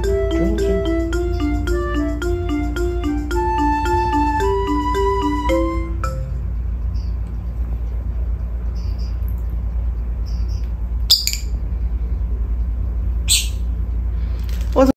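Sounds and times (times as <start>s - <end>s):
steady low hum: 0.0s - 14.8s
parrots chirping: 10.2s - 11.6s, 13.2s - 13.8s.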